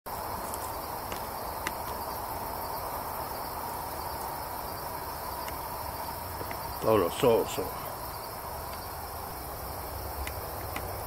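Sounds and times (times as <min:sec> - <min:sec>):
night insects droning: 0:00.1 - 0:11.0.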